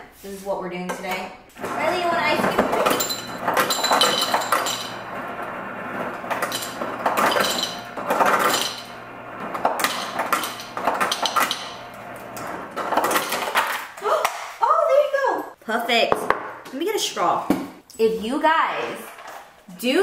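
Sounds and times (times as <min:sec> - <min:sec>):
low motor hum: 0:01.6 - 0:12.8
ice cubes clattering into glass: 0:02.5 - 0:05.0, 0:06.3 - 0:08.9.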